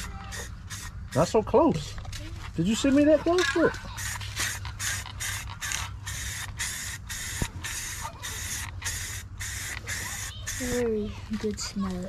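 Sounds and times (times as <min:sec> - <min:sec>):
spray paint can hissing in bursts: 0:00.0 - 0:01.5, 0:03.7 - 0:11.1.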